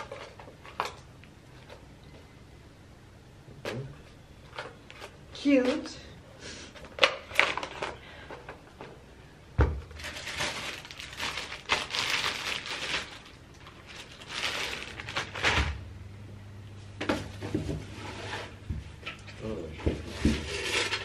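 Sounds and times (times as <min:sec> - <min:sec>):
plastic packaging crinkling: 0:06.9 - 0:08.0, 0:09.9 - 0:15.8.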